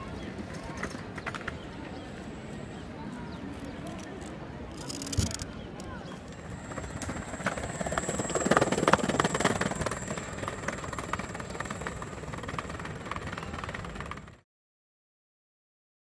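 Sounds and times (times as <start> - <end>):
skateboard wheels clattering on bricks: 6.3 - 14.2.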